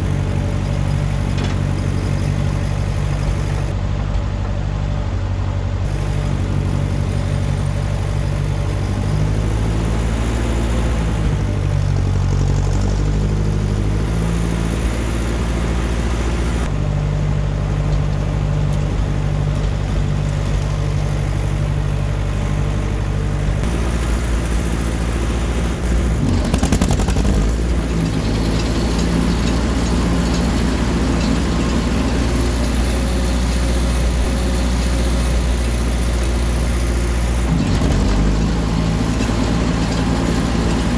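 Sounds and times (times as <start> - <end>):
tractor engine running: 0.0 - 40.9.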